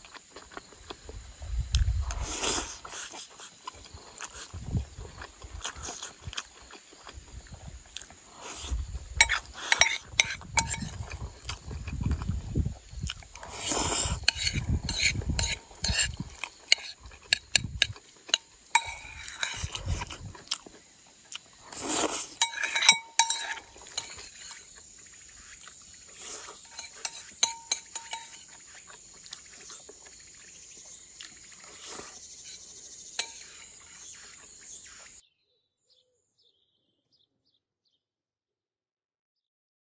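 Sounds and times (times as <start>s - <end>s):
chewing and smacking: 0.0s - 24.8s, 26.4s - 32.2s
spoon clinking against ceramic bowl: 9.2s - 11.0s, 14.3s - 19.7s, 22.4s - 24.6s, 26.6s - 28.6s, 33.2s - 33.7s.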